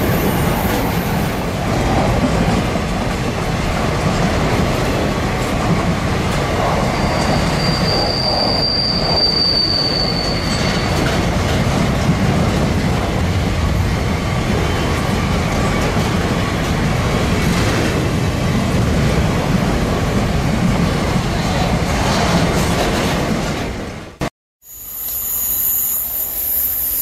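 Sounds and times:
freight train wheels rumbling: 0.0 - 24.3
high wheel squeal: 6.8 - 11.3, 24.7 - 27.0.

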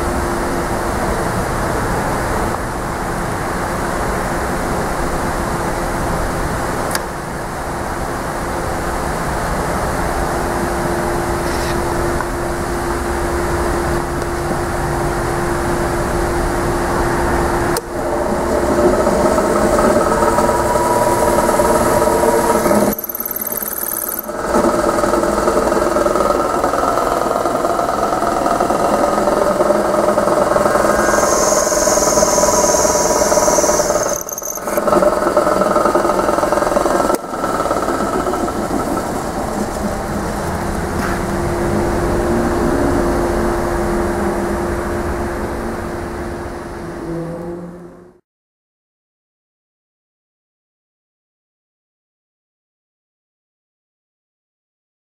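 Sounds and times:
high machine whine: 7.5 - 46.8
drill press boring into metal: 18.3 - 38.1.

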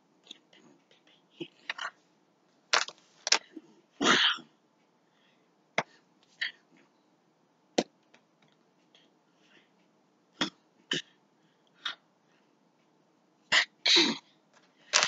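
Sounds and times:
hands slapping: 2.7 - 3.4.

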